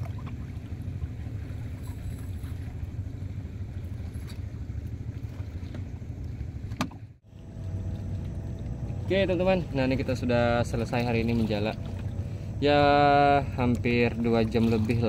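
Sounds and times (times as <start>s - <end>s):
steady low rumble: 0.0s - 15.0s
net clicking against boat: 6.6s - 7.1s.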